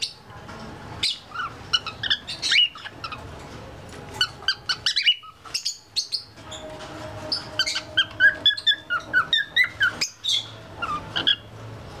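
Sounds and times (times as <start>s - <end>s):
cockatiel chirping and whistling: 4.2s - 6.3s, 7.3s - 11.5s.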